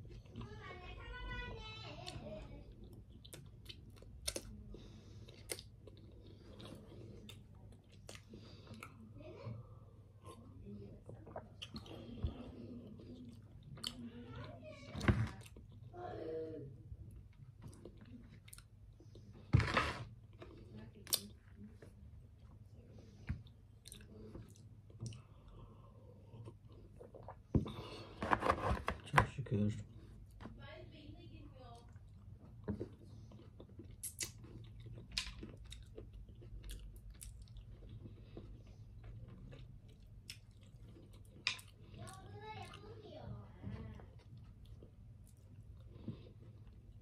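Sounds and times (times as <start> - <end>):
person chewing food: 2.0 - 9.2, 10.1 - 14.2, 17.1 - 28.8, 31.8 - 43.0, 43.8 - 47.0
wet mouth clicks and smacks: 33.9 - 35.8.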